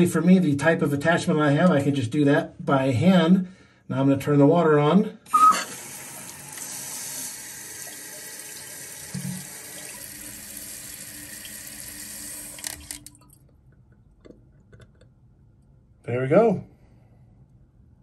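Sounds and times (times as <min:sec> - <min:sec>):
water hissing into toilet tank: 0:05.3 - 0:13.2.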